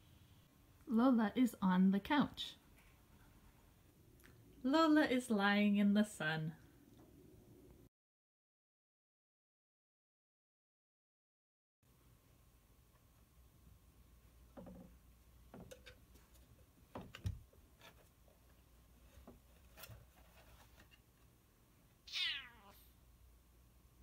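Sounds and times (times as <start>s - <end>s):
cat meowing: 22.1s - 22.9s.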